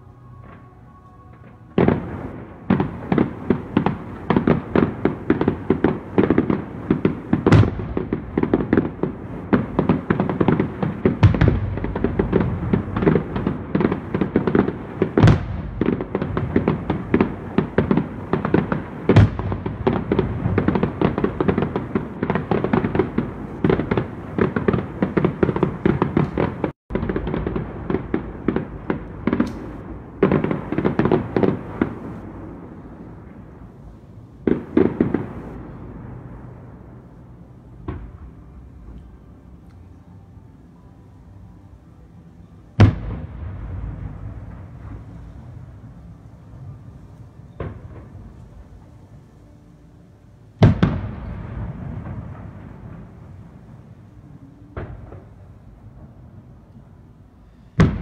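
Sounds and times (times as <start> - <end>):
loud fireworks booms: 1.3 - 39.0, 42.8 - 48.9, 50.6 - 56.7, 57.4 - 58.0
fireworks bangs and pops: 1.8 - 32.3, 34.4 - 35.7, 57.8 - 58.0.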